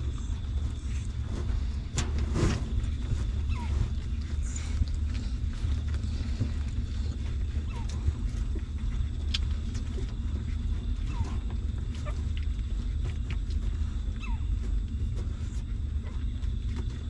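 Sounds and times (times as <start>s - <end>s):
steady low rumble: 0.0s - 17.0s
puppies squeaking: 3.4s - 4.6s, 7.6s - 8.0s, 11.0s - 12.2s, 14.1s - 14.7s.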